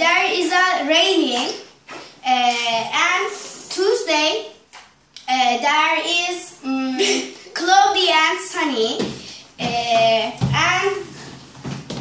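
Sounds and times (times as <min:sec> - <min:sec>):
girl speaking slowly: 0:00.0 - 0:04.6, 0:05.2 - 0:11.2.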